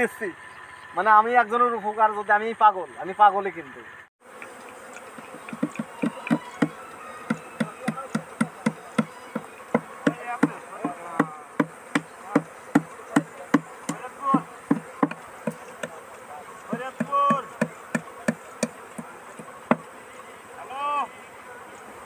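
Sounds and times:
bees buzzing: 4.2 - 22.0
bees hitting microphone ticks: 4.3 - 19.9.

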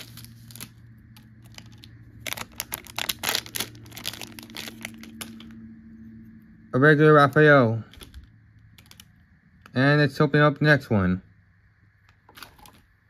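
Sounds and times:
plastic bag tearing and crinkling: 0.0 - 5.6
faint steady hum: 0.0 - 13.0.

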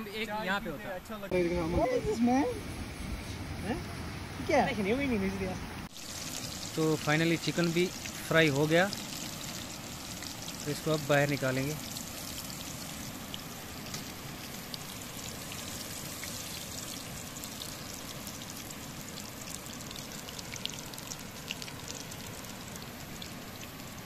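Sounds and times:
chicken frying in hot oil: 5.9 - 24.0.

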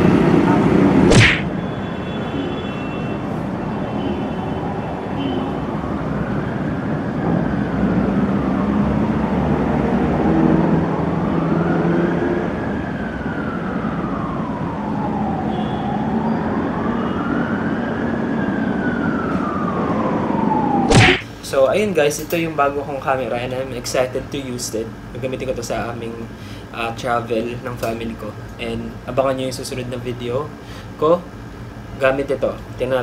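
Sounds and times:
emergency siren wailing: 0.0 - 21.2
street traffic hum: 0.0 - 33.0.

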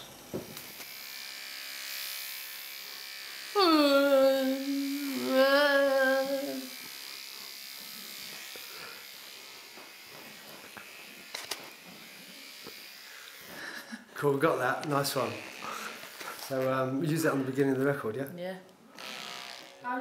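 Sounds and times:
electric toothbrush buzzing: 0.1 - 17.0, 18.9 - 20.0
woman singing through toothbrush: 3.6 - 6.8.

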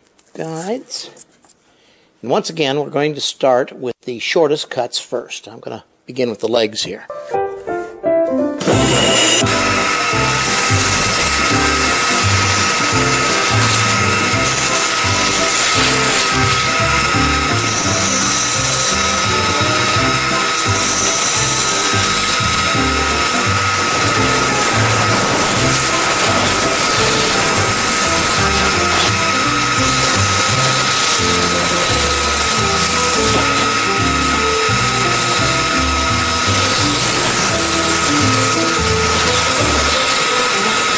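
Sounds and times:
background music: 7.1 - 40.9
band saw cutting wood: 8.6 - 40.9.

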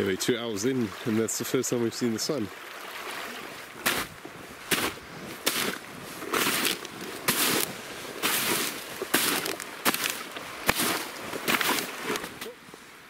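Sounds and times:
footsteps crunching in snow: 3.8 - 12.4.

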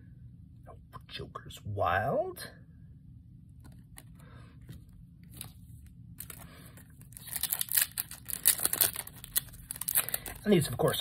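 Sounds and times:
foil wrapper crinkling and tearing: 6.2 - 11.0.

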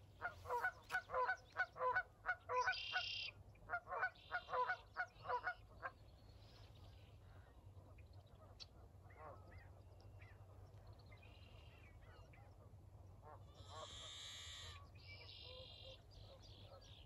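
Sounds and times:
geese honking: 0.2 - 5.6.

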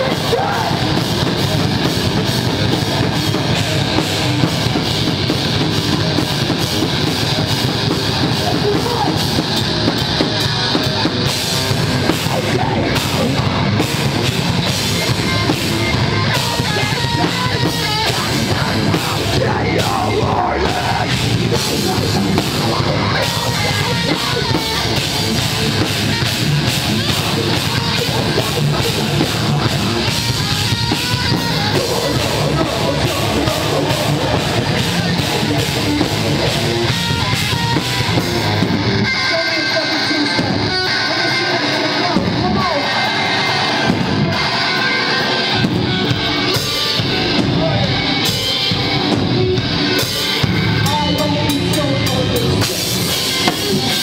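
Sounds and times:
heavy rock band playing: 0.0 - 54.0.

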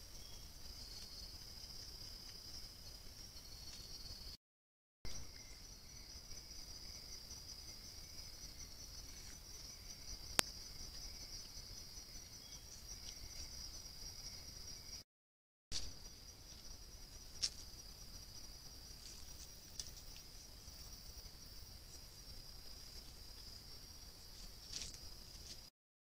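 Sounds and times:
insect high-pitched trill: 0.0 - 4.4, 5.1 - 15.0, 15.8 - 25.7
low insect buzz: 5.1 - 15.0.

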